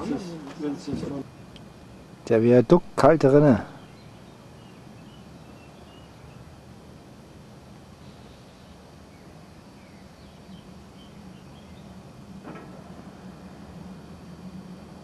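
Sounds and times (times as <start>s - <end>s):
steady low rumble: 8.7s - 15.0s.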